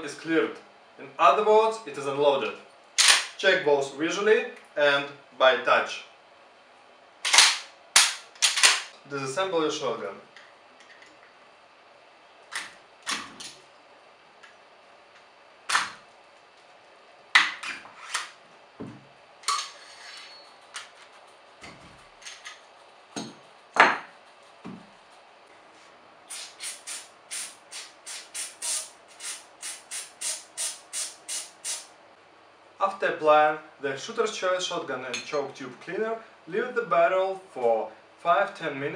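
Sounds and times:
metal gun parts clicking: 7.3s - 8.9s
aerosol can being shaken: 26.3s - 31.8s.

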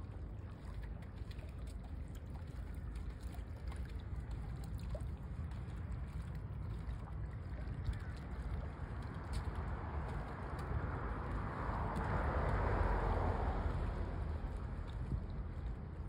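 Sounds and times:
faint trickling water: 0.0s - 16.0s
wind rumble on microphone: 0.0s - 16.0s
light ticks: 7.8s - 12.6s.

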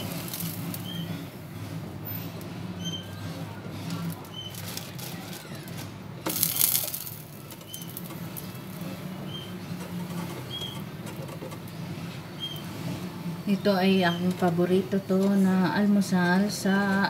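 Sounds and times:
bread sizzling in hot oil: 0.0s - 1.1s, 6.3s - 10.8s.

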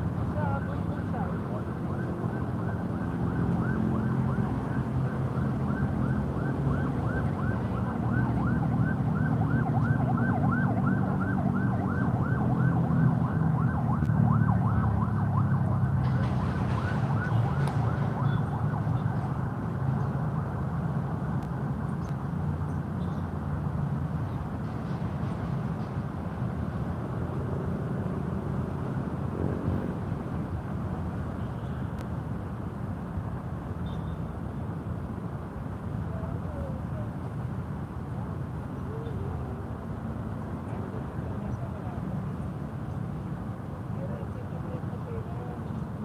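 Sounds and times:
siren yelping: 1.7s - 16.0s.

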